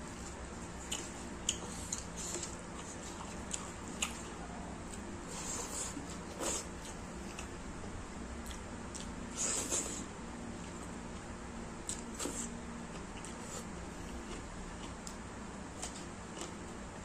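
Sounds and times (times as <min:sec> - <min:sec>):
mouth chewing with wet smacks: 0:00.8 - 0:05.0.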